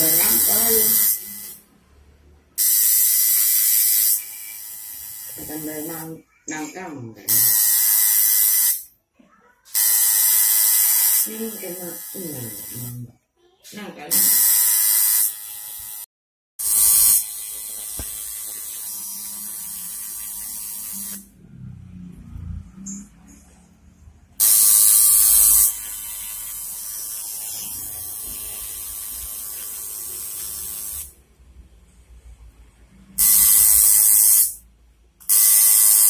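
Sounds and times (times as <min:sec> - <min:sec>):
tattoo machine buzzing: 0:00.0 - 0:01.7, 0:02.6 - 0:06.1, 0:07.3 - 0:08.9, 0:09.7 - 0:13.0, 0:14.1 - 0:21.3, 0:24.4 - 0:31.2, 0:33.2 - 0:34.6, 0:35.2 - 0:36.0.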